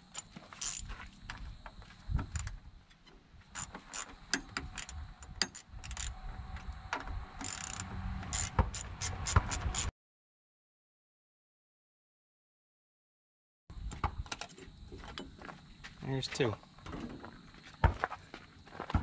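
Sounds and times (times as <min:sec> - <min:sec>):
ratchet wrench clicking: 0:00.1 - 0:00.9, 0:03.6 - 0:06.1, 0:07.4 - 0:09.9.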